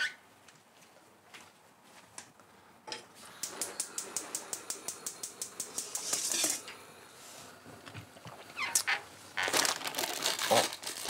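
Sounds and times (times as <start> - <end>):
gas burner catching rush: 3.2 - 7.2.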